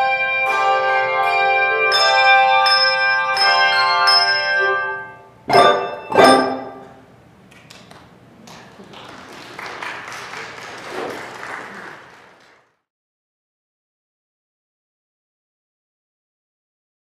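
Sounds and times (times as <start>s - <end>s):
handbell chords ringing: 0.0s - 6.9s
applause: 7.6s - 12.9s.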